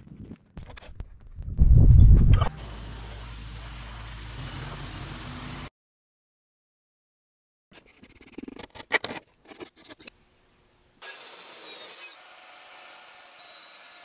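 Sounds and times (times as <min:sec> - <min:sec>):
power saw cutting steel: 0:11.0 - 0:14.0.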